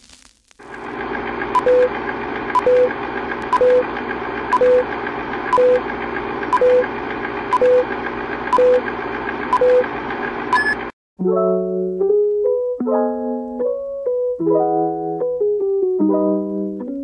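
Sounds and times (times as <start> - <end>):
film projector whirring: 0.6 - 10.9
short beeps: 10.5 - 10.8.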